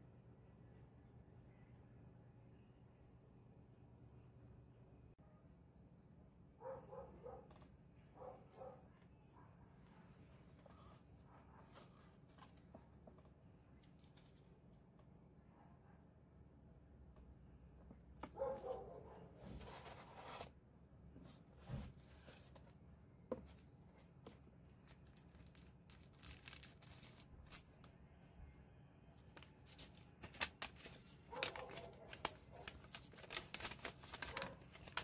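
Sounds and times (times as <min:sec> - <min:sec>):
paper leaflet crackling: 0:24.8 - 0:27.7, 0:29.3 - 0:35.0
packaging rustling and tapping: 0:29.7 - 0:35.0.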